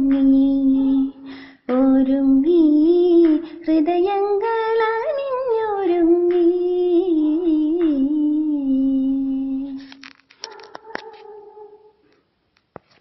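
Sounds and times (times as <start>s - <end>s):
woman singing: 0.0s - 9.8s.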